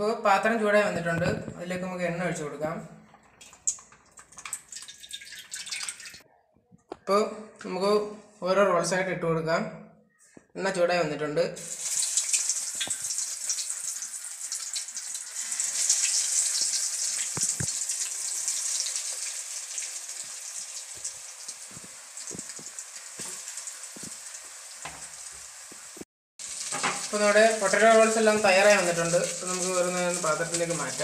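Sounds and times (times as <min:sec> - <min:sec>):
deep-frying sizzle with pops: 0:03.3 - 0:06.2, 0:11.6 - 0:31.0.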